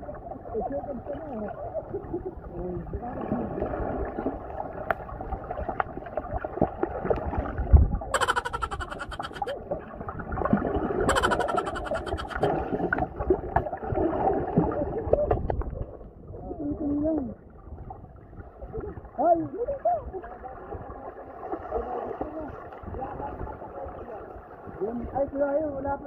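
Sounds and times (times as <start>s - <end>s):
underwater gurgling and bubbling: 1.4s - 8.2s, 9.0s - 16.0s.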